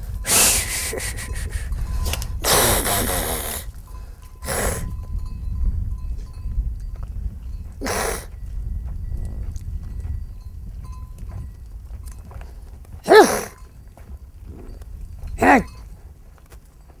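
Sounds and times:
wind rumble on microphone: 0.0 - 17.0
person hissing shh calls: 0.3 - 1.7, 7.8 - 8.3.

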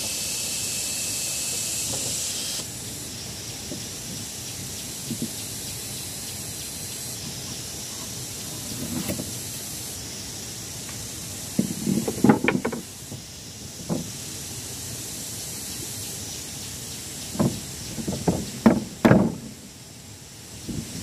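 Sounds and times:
steady background hiss: 0.0 - 21.0
wooden boards knocking and clattering: 11.6 - 13.0, 13.8 - 14.1, 17.3 - 19.6.

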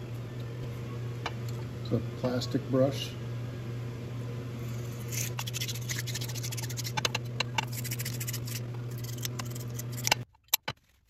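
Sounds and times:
steady low hum: 0.0 - 10.4
plastic brush scrubbing metal: 5.2 - 10.2.

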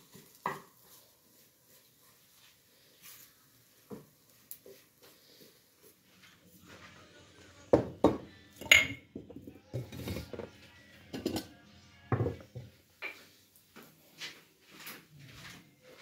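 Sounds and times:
tableware knocking and clinking: 7.7 - 10.5, 11.1 - 11.5, 12.1 - 13.2.

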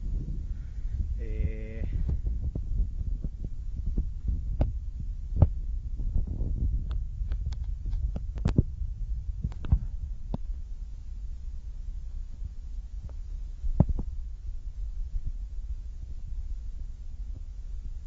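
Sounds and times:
microphone handling noise: 0.0 - 10.6, 12.3 - 14.3
wind rumble: 0.0 - 18.0.

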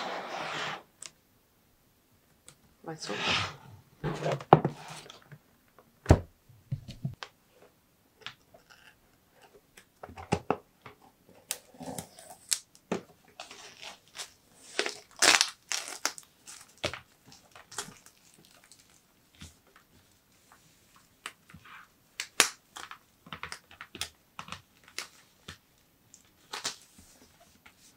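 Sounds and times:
plastic wrapping crinkling: 13.4 - 19.1.

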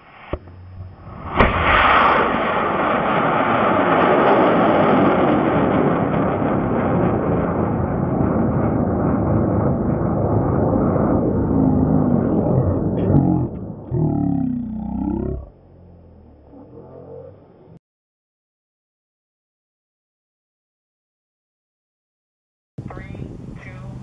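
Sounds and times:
rocket motor igniting with a crack: 1.2 - 4.9.

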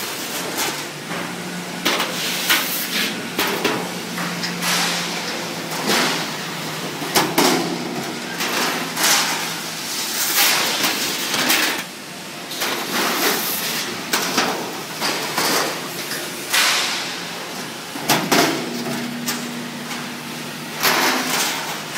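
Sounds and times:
machine hum: 0.1 - 21.9.

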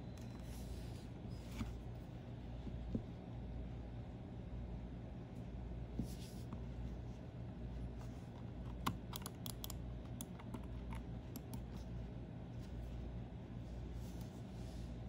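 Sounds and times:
mouse clicking: 8.7 - 11.8.

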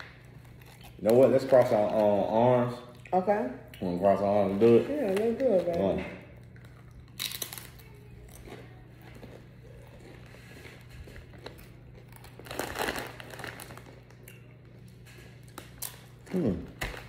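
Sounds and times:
crinkling crackle: 0.0 - 2.4, 4.4 - 17.0
chewing crunches: 0.0 - 3.1, 6.4 - 17.0.

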